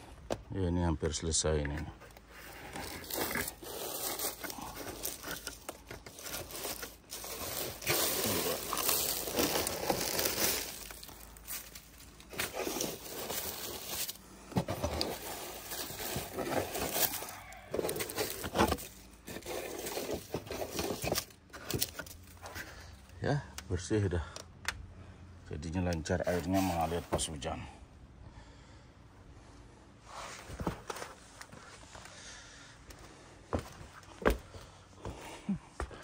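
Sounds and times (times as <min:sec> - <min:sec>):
dry leaves rustling: 0:02.5 - 0:22.3, 0:26.2 - 0:27.0.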